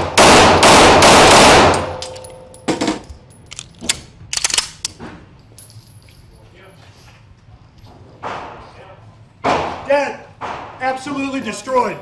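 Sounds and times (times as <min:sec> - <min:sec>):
pistol shots echoing indoors: 0:00.0 - 0:03.0
pistol handling clicks: 0:01.7 - 0:05.0.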